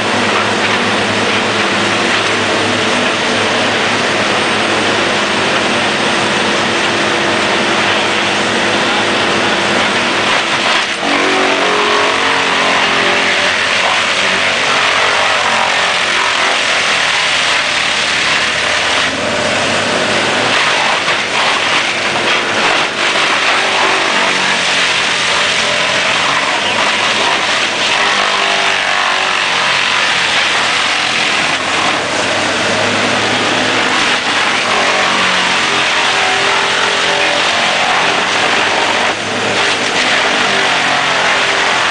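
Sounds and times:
wood chipper engine: 0:00.0 - 0:41.9
wood chipping din: 0:08.9 - 0:41.9.

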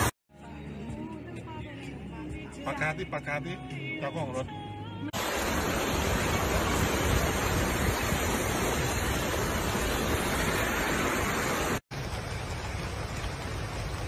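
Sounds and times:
floodwater rushing: 0:05.2 - 0:14.0.

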